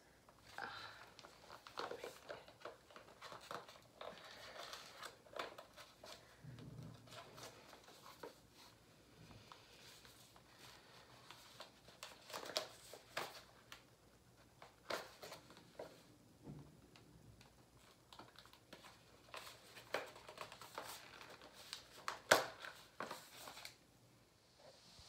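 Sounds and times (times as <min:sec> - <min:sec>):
foil crinkling: 0:18.1 - 0:23.8.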